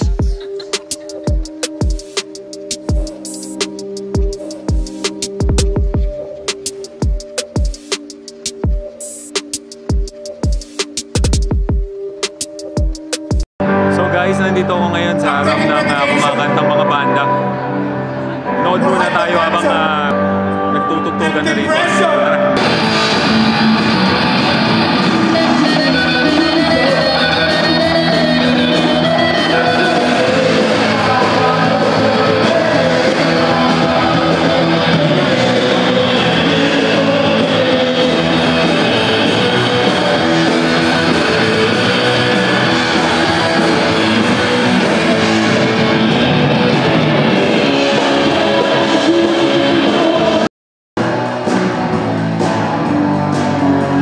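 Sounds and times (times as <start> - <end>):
drum beat: 0.0 - 13.5
electric guitars: 13.6 - 50.4, 51.0 - 54.0.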